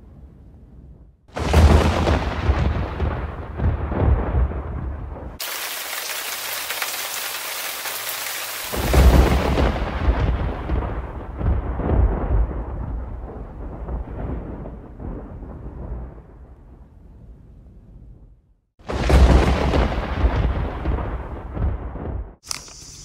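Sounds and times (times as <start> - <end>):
roll of thunder: 0.0 - 5.4, 8.7 - 22.4
loud thunderclap rumbling: 0.8 - 6.4, 8.6 - 22.4
heavy rain: 1.3 - 4.6, 5.4 - 12.8.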